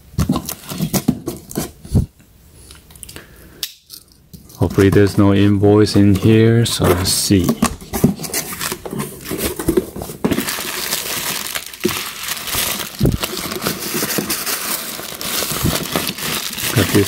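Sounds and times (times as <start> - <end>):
plastic packing wrap crinkling: 4.5 - 17.0.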